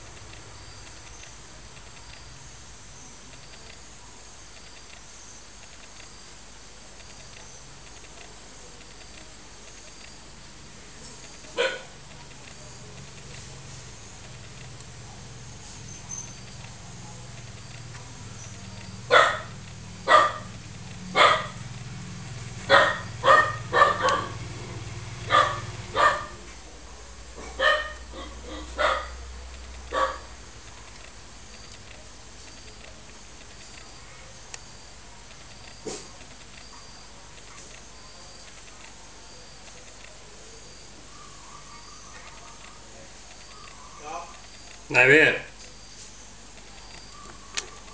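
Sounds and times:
faint high-pitched chirps: 0:00.0 - 0:19.2, 0:45.7 - 0:47.9
dog barking: 0:11.5 - 0:12.0, 0:19.1 - 0:21.6, 0:22.7 - 0:24.5, 0:25.2 - 0:26.5, 0:27.4 - 0:29.3, 0:29.9 - 0:30.4.

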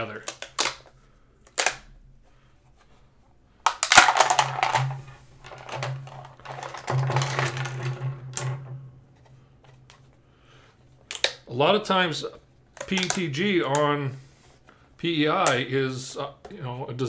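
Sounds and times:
plastic parts clattering on wooden desk: 0:03.7 - 0:10.0.

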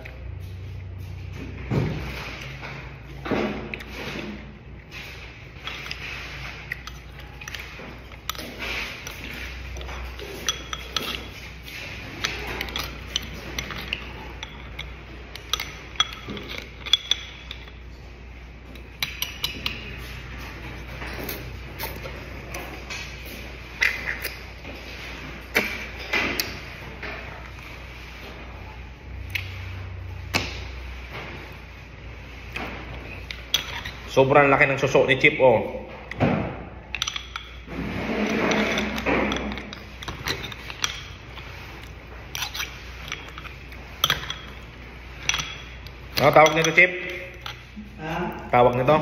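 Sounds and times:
fork clinking on snail shells: 0:12.2 - 0:17.8.

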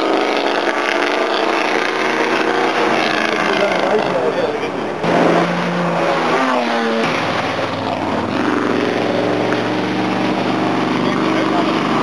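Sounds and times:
racing car engines passing: 0:00.0 - 0:12.0.

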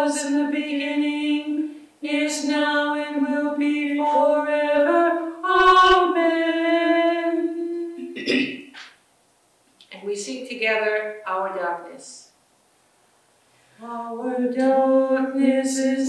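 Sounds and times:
woman singing a slow chant: 0:00.0 - 0:08.2, 0:13.8 - 0:16.0.

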